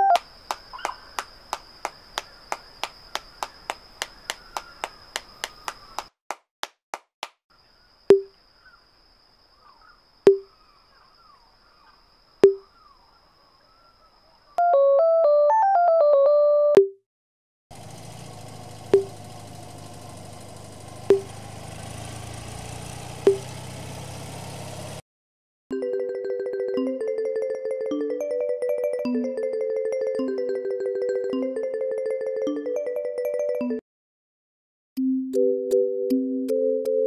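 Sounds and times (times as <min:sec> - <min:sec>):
faint chirps: 0:00.0 - 0:06.0, 0:07.6 - 0:14.6
sharp pops with hollow tone: 0:00.1 - 0:07.4, 0:08.1 - 0:08.4, 0:10.3 - 0:10.5, 0:12.4 - 0:12.6, 0:18.9 - 0:19.3, 0:21.0 - 0:21.4, 0:23.2 - 0:23.6
fast electronic ticking: 0:18.3 - 0:20.1.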